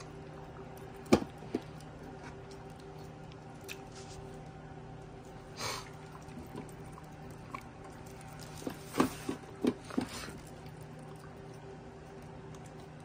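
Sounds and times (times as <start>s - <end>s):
faint steady hum: 0.0s - 13.0s
dog eating from metal bowl: 5.9s - 13.0s.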